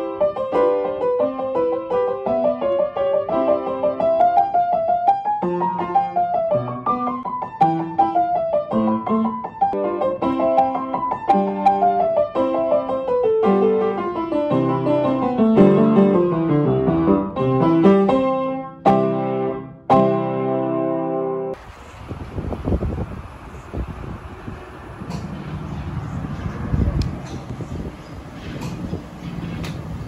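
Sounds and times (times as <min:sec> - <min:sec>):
upright piano playing: 0:00.0 - 0:21.6.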